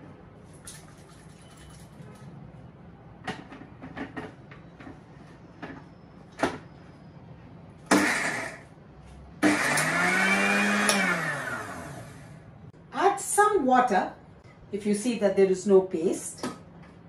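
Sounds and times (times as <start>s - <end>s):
mixer motor whine: 7.9s - 8.7s, 9.4s - 12.5s.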